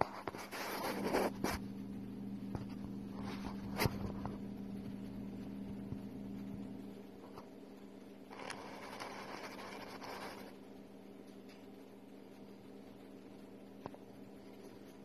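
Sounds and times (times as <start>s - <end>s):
steady electrical hum: 0.0s - 15.0s.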